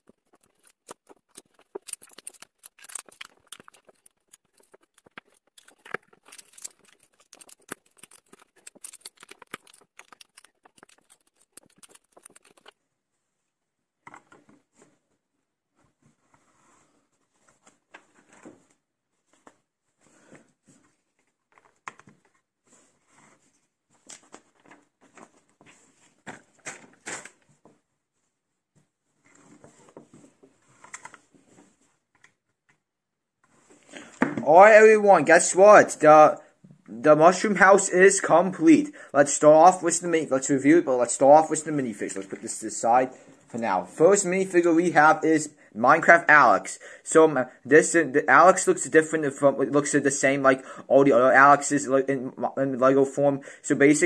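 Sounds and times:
plastic bricks clicking: 0.1s - 12.7s.

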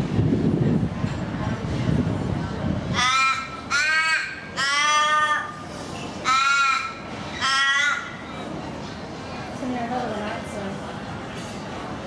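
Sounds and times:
raven cawing: 3.0s - 5.6s, 6.2s - 8.2s.

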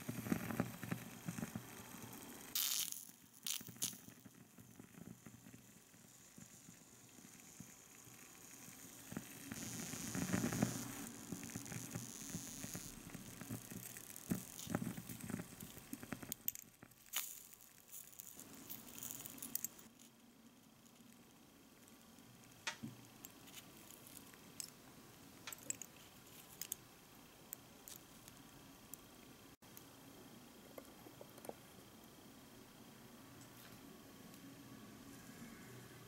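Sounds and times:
batter sizzling in pan: 0.0s - 20.0s.

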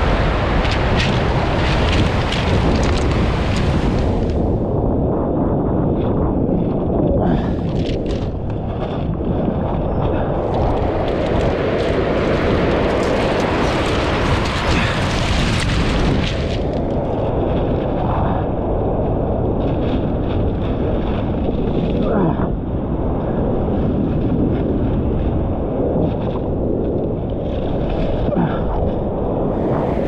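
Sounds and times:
wave breaking on shore: 0.0s - 4.7s, 7.2s - 22.7s, 27.4s - 30.0s
sea surf rumble: 0.0s - 30.0s
wind buffeting microphone: 0.0s - 30.0s.

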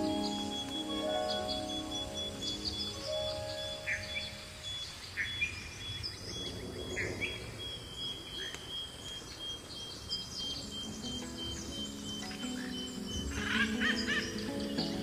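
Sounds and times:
birds chirping: 0.0s - 15.0s
high insect drone: 0.0s - 15.0s
low held musical tones: 0.0s - 15.0s.

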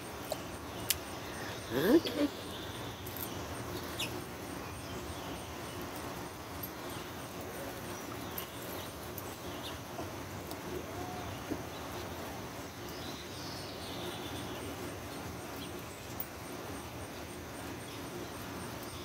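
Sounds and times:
outdoor background hiss: 0.0s - 19.0s.

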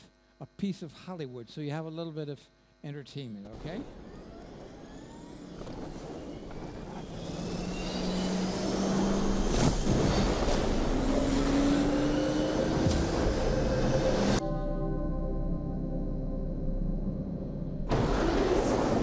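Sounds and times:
jet engine spooling up: 3.5s - 14.4s.

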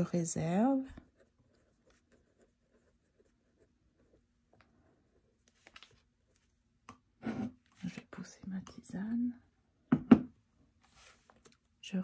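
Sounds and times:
pen scratching on paper: 1.0s - 4.3s.

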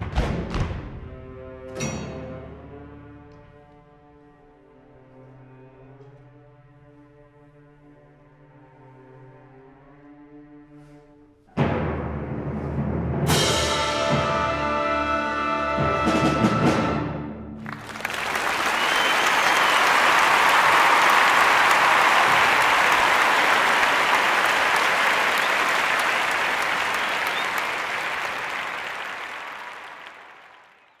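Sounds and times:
audience applause: 17.6s - 31.0s.

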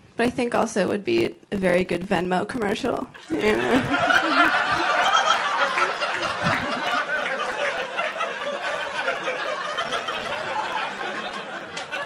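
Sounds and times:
audience laughing: 3.2s - 12.0s.

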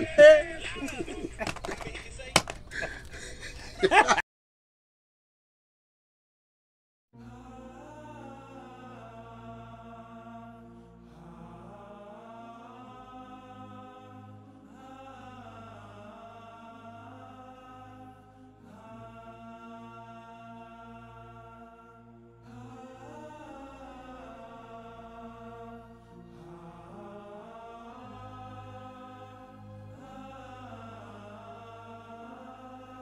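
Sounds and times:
soft background music drone: 7.2s - 33.0s.

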